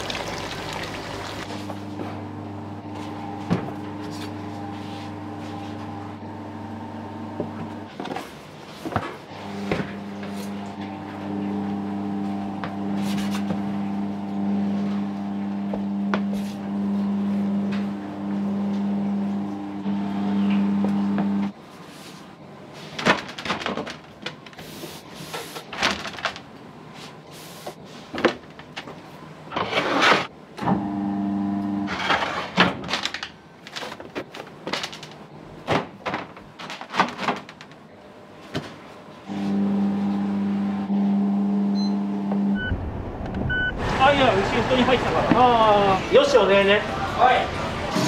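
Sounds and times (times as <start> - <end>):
electric machine hum: 0.0 - 7.9, 9.3 - 21.6, 30.6 - 31.9, 39.1 - 47.9
car low rumble: 41.0 - 45.8
short beeps: 41.7 - 42.8, 43.5 - 43.8.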